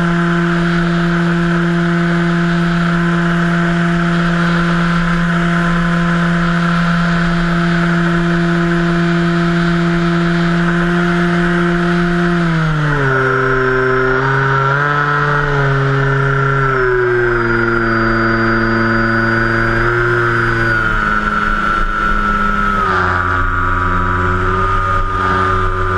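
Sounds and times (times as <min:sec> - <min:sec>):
electric motor and propeller hum: 0:00.0 - 0:25.9
rushing airflow: 0:17.7 - 0:25.9.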